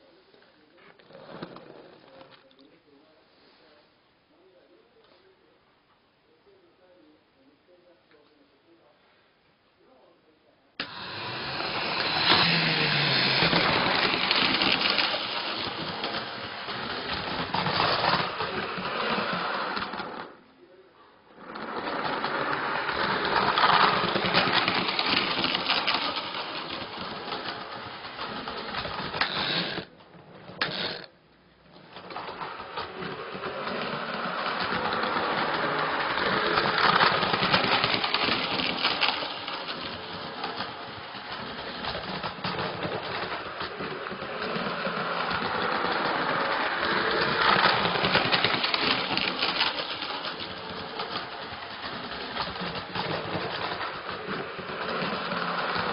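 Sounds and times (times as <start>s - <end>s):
model train rattling on track: 10.8s - 20.2s, 21.5s - 29.9s, 32.0s - 55.9s.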